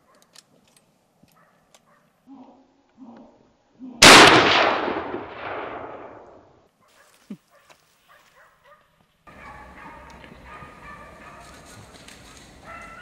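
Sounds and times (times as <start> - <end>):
rifle shot echoing: 4.0 - 6.6.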